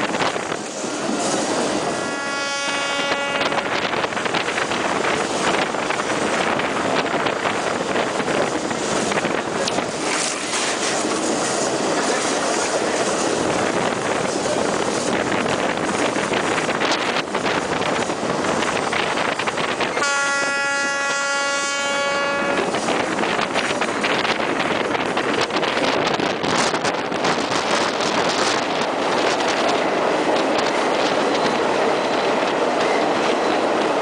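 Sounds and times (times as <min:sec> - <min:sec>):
train rushing noise: 0:00.0 - 0:34.0
train horn: 0:01.9 - 0:03.9, 0:20.0 - 0:22.8.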